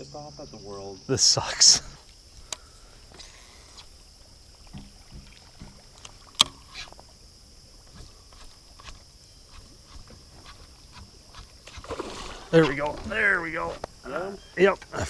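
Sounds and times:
soft knocks on aluminum boat: 4.6s - 6.6s
fishing reel and rod handling: 7.8s - 11.9s.

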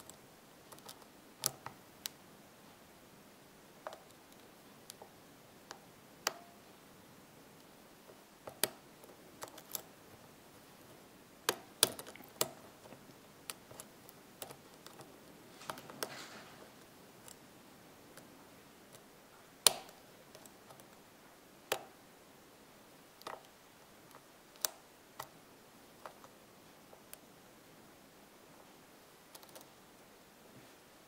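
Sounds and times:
lock pick metal clicks: 9.4s - 9.9s, 11.5s - 15.1s
soft rustle: 12.0s - 19.5s, 27.8s - 31.0s.

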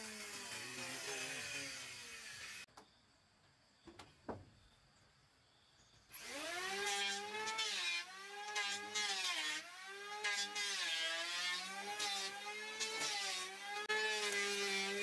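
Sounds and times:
power tool motor whining: 6.1s - 15.0s.

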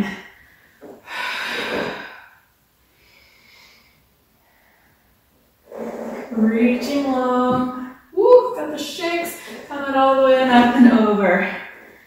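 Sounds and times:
woman breathing hard: 0.1s - 2.4s.

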